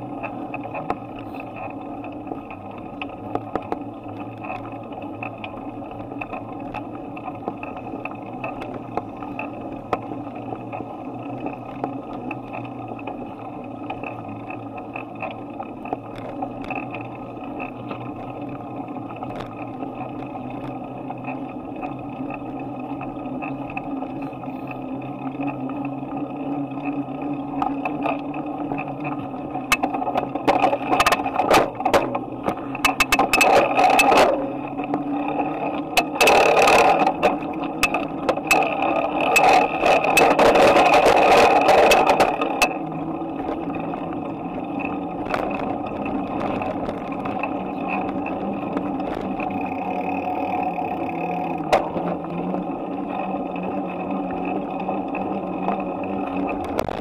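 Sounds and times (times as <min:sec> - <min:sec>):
bicycle clicks and rattles: 0:00.0 - 0:57.0
bicycle rolling noise: 0:00.0 - 0:57.0
sharp knocks and rattles: 0:29.7 - 0:34.4, 0:36.0 - 0:42.7.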